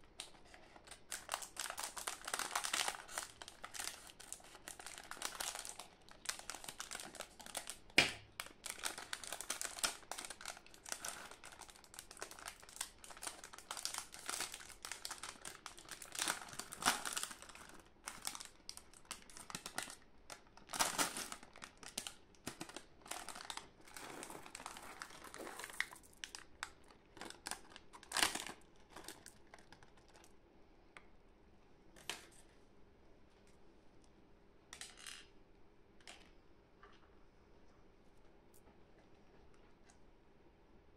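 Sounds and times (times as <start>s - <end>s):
candy wrappers crinkling: 0.0s - 30.4s
packets tearing open: 0.2s - 20.0s, 20.6s - 30.3s.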